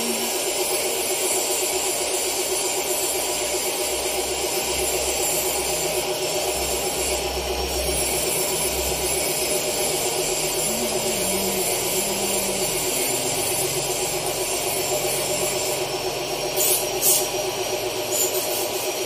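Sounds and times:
steady machine hum: 0.0 - 19.0
welding torch flame hissing: 16.5 - 19.0.

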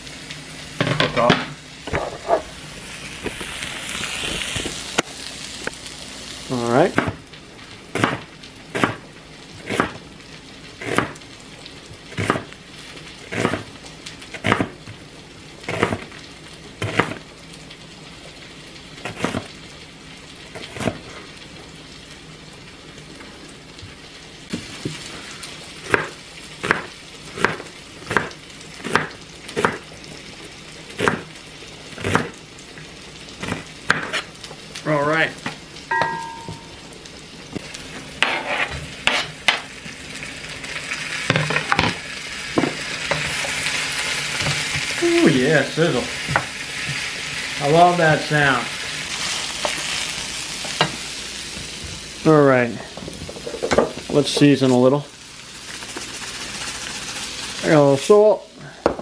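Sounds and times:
vegetables sizzling in oil: 0.0 - 58.9.

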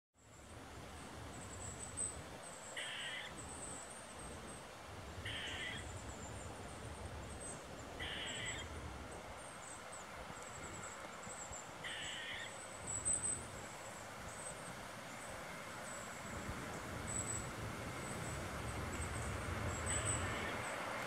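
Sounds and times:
squirrel barking: 2.8 - 3.3, 5.2 - 5.8, 8.0 - 8.7, 11.8 - 12.5, 19.9 - 20.6.

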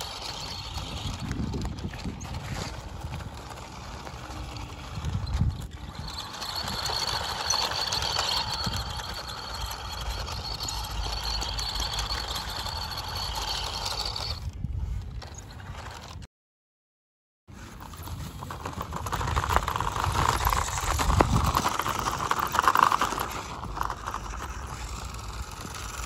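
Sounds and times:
toy electric motor whining: 0.0 - 16.2, 18.9 - 26.0.

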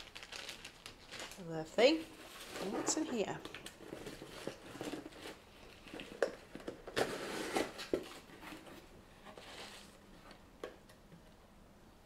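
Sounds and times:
packing rustling: 0.0 - 8.8.

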